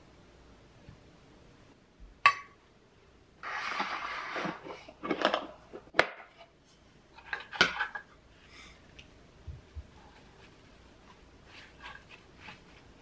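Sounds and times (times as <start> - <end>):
sliding rustling noise: 3.4 - 5.4, 9.6 - 13.0.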